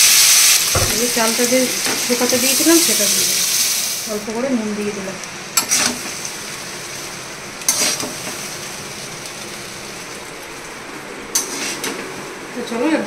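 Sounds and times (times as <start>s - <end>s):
faint sizzle: 0.0s - 13.0s
metal spatula scraping a pan: 5.6s - 6.2s, 7.7s - 8.2s, 11.4s - 11.9s.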